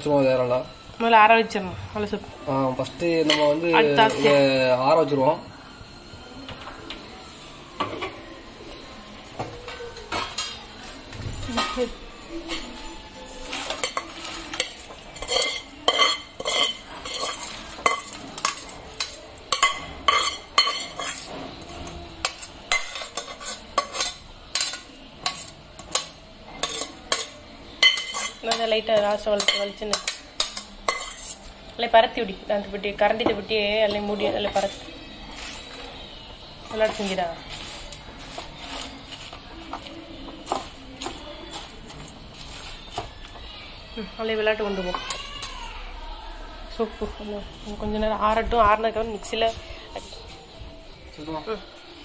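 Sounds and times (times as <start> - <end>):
metal ladle scraping and clinking: 12.4 - 31.5.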